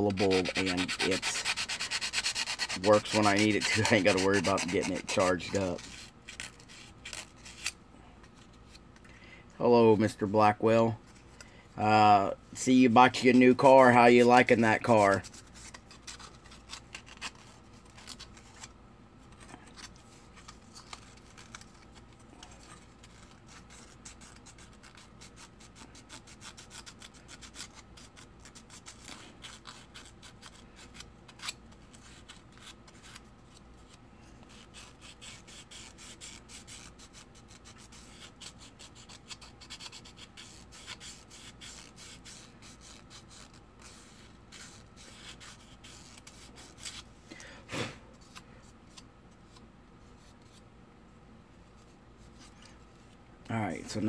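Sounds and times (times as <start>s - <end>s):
sandpaper scratching plastic: 0.0s - 7.8s, 13.0s - 18.7s, 19.5s - 47.1s.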